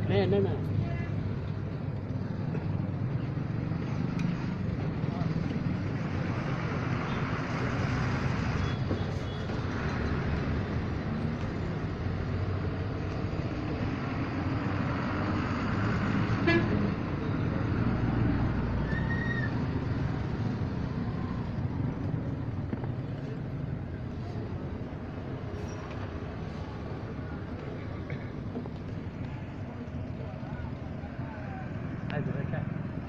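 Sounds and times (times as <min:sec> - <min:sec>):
street traffic noise: 0:00.0 - 0:33.0
vehicle horn toots: 0:16.4 - 0:16.8.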